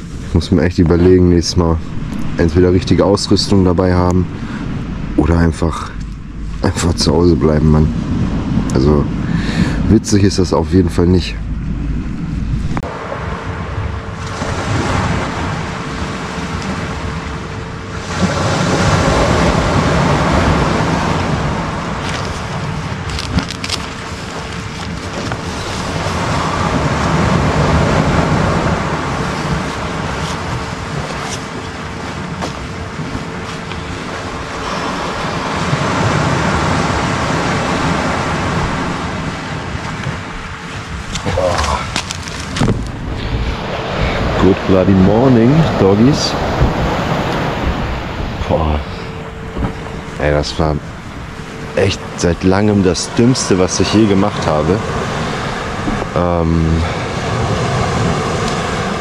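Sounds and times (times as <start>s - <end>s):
wind on microphone: 0.0s - 59.0s
waves breaking on sand: 12.8s - 59.0s.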